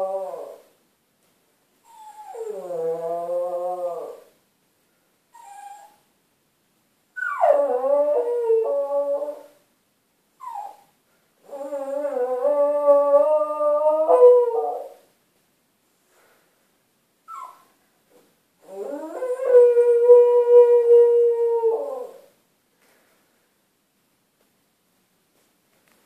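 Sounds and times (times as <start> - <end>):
dog yelping: 10.4 - 10.9, 17.3 - 17.7
dog howling: 11.5 - 15.0.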